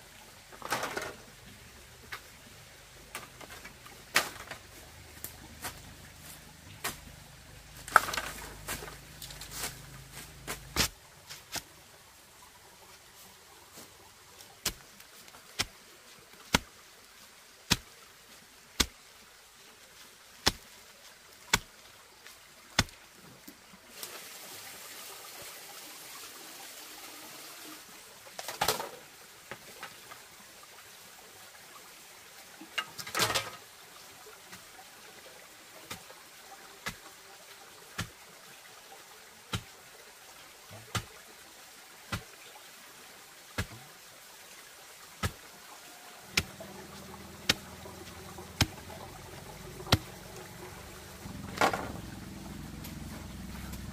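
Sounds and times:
rustling in dry bamboo litter: 2.0 - 11.9, 12.7 - 19.0, 19.8 - 25.4, 45.2 - 53.9
bamboo knocks: 46.3 - 50.3, 51.2 - 52.1.

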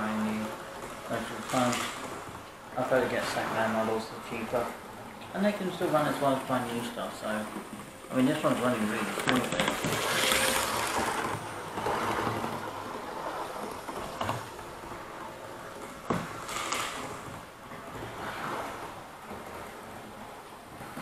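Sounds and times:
model trains rumbling on track: 0.0 - 21.0.

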